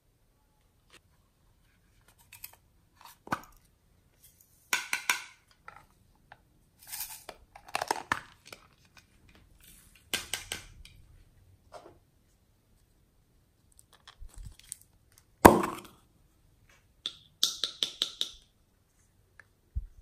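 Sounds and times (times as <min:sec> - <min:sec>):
containers being handled and opened: 0:01.9 - 0:11.0.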